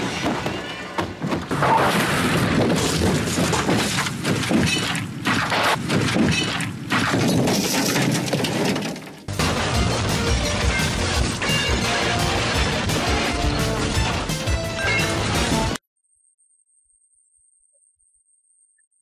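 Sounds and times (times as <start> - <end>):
metal crunching impacts: 0.0 - 15.8
glass shattering: 2.7 - 12.3, 14.7 - 15.4.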